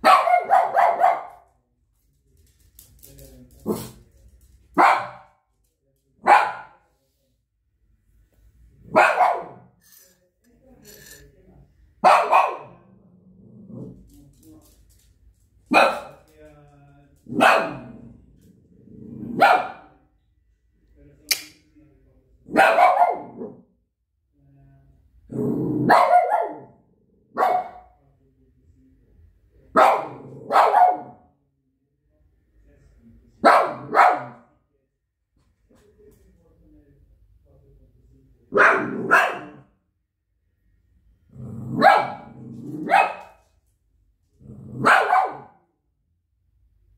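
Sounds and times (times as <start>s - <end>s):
small dog barking: 0.0s - 1.5s, 4.8s - 5.3s, 6.2s - 6.8s, 8.9s - 9.7s, 12.0s - 12.9s, 15.7s - 16.2s, 17.3s - 18.0s, 19.2s - 19.9s, 22.5s - 23.6s, 25.8s - 28.0s, 29.8s - 31.3s, 33.4s - 34.5s, 38.5s - 39.7s, 41.7s - 43.4s, 44.8s - 45.6s
low dog growl: 12.8s - 14.2s, 17.8s - 19.4s, 25.3s - 25.9s, 41.3s - 42.9s, 44.4s - 44.9s.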